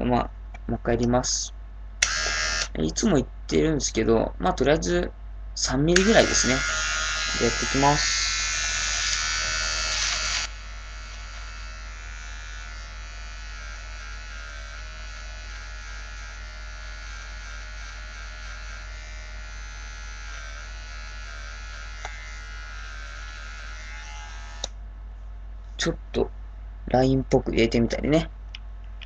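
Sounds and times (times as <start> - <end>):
electric hair clippers buzzing: 2.0 - 2.8, 5.9 - 24.8.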